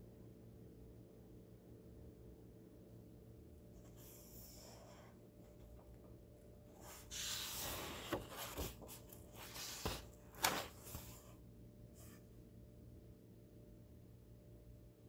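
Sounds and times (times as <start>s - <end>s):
book pages turning: 6.7s - 11.4s.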